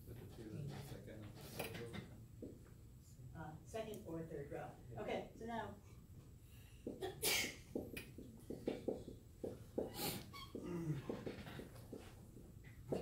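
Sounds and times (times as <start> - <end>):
marker writing on whiteboard: 6.8 - 13.0
marker squeaks: 9.8 - 10.6.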